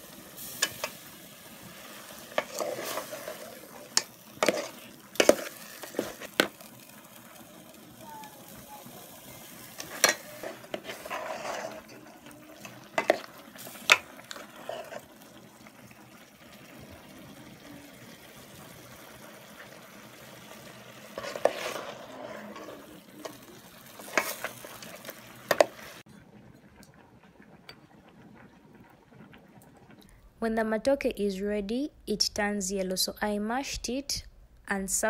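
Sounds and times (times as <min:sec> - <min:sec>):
ladle scraping through stew: 0:02.2 - 0:06.6, 0:09.7 - 0:15.1, 0:21.1 - 0:26.0.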